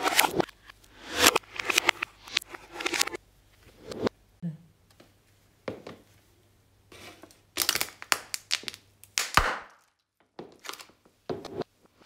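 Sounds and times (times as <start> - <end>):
plastic cup crackling underfoot: 7.2 - 11.0.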